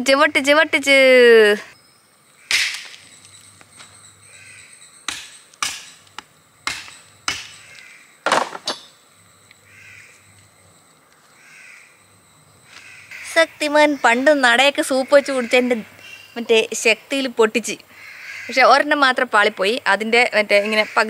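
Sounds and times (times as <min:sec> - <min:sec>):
crows cawing: 0:02.4 - 0:02.7, 0:04.3 - 0:04.7, 0:07.3 - 0:08.2, 0:09.7 - 0:10.2, 0:11.3 - 0:12.0, 0:12.7 - 0:14.2, 0:14.9 - 0:16.3, 0:17.9 - 0:18.8
axe chopping bone: 0:05.1 - 0:05.9, 0:06.6 - 0:07.6.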